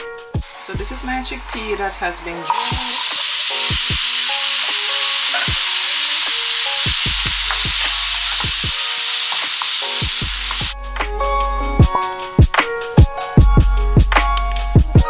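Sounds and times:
background music with a beat: 0.0 - 15.0
chickpeas sizzling in oil: 2.5 - 10.8.

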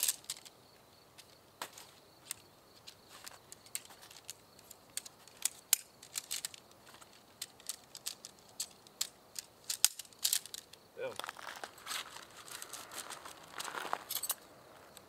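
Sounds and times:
tent poles clicking: 0.0 - 0.6, 1.2 - 15.0.

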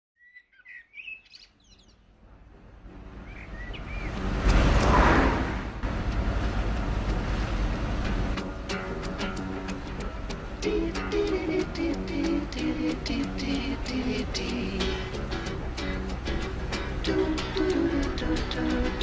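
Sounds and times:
birds chirping: 0.2 - 2.4, 3.1 - 4.4
old car engine rumbling: 5.6 - 19.0.

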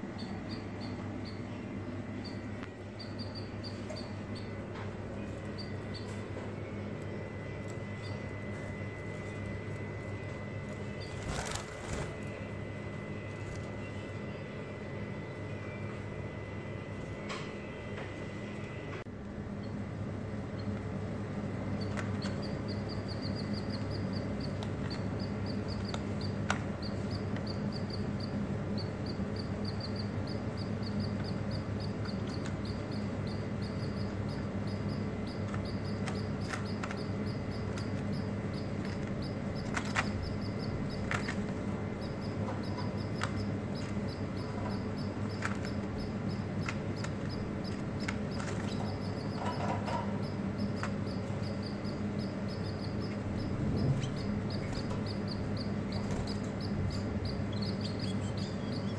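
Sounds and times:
rapid high chirping: 0.0 - 16.4, 21.7 - 58.9
canaries pecking and hopping: 0.0 - 17.7, 19.6 - 58.9
steady low hum: 0.0 - 58.9.

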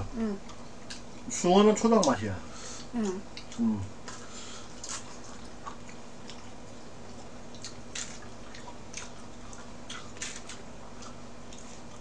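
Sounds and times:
steady low hum: 0.0 - 12.0
person chewing: 2.8 - 12.0.

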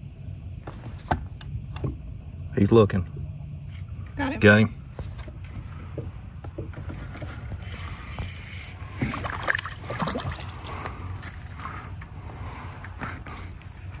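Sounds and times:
fish splashing at water surface: 8.2 - 11.8.

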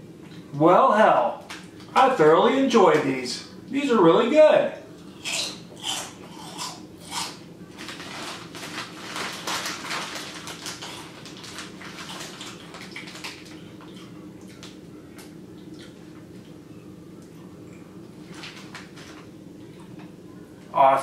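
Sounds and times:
chips crunching while chewed: 5.2 - 16.0
plastic bag crinkling: 7.7 - 13.9, 18.2 - 19.3.

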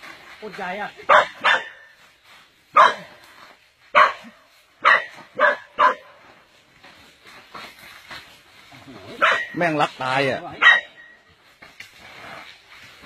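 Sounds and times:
dog barking: 1.1 - 1.9, 2.7 - 3.1, 3.9 - 6.2, 9.1 - 9.6, 10.6 - 11.0.

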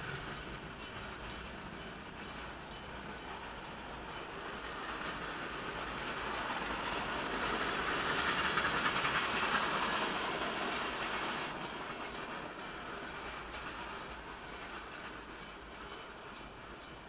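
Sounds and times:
freight train wheels clicking on rail: 0.0 - 17.0.

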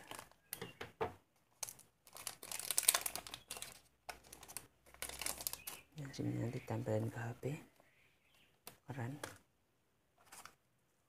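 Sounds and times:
plastic packet crinkling: 0.0 - 0.6, 1.5 - 6.0.

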